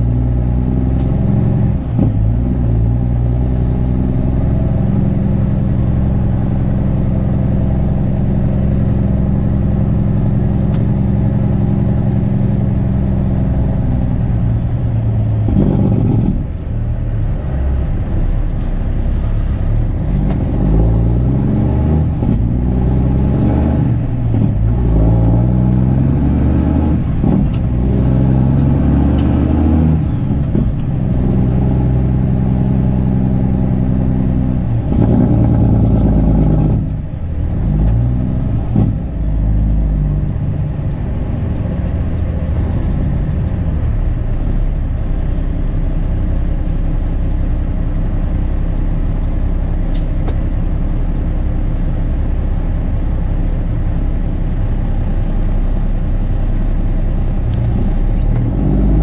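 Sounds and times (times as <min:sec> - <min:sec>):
diesel truck engine running: 0:00.0 - 0:59.0.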